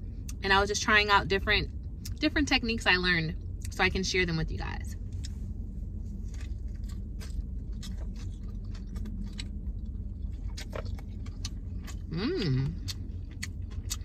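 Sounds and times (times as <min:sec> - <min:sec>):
steady low hum: 0:00.0 - 0:14.0
person chewing food: 0:05.2 - 0:14.0.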